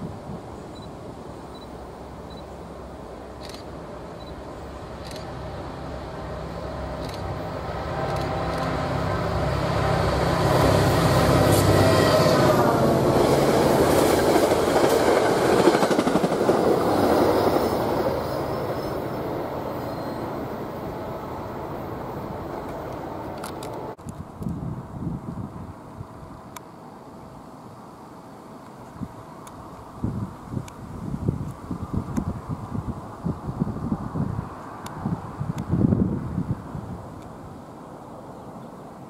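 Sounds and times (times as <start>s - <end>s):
train wheels rumbling on rails: 3.3s - 24.6s.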